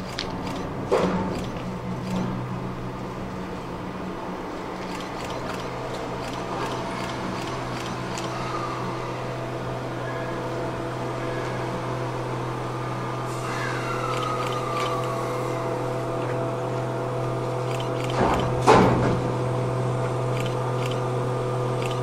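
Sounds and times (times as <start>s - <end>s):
electric locomotive humming: 0.0s - 22.0s
running gear squeals: 13.4s - 15.6s.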